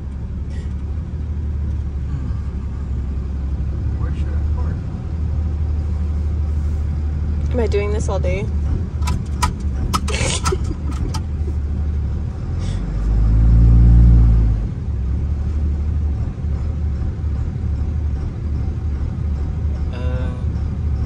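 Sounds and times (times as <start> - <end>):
truck engine running: 0.0 - 21.0
clicks: 9.0 - 11.3.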